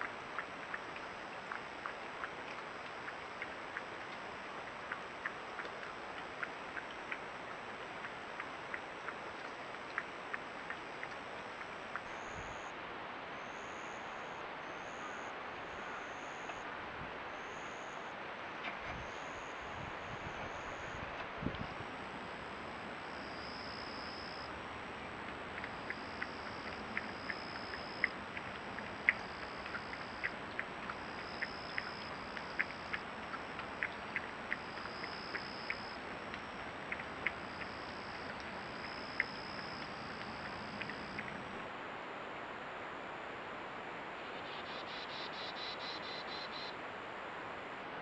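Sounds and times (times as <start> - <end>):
sharp ticks: 0.0 - 12.7, 20.6 - 41.6
steady hiss: 0.0 - 41.7
insects trilling: 13.4 - 16.6, 19.0 - 24.5, 25.5 - 41.6, 44.4 - 46.7.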